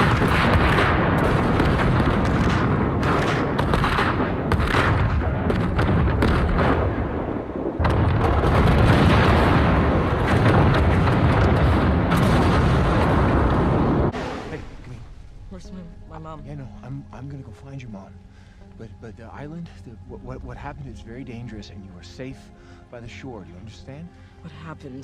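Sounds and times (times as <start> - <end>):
rolling barrage of explosions: 0.0 - 15.2.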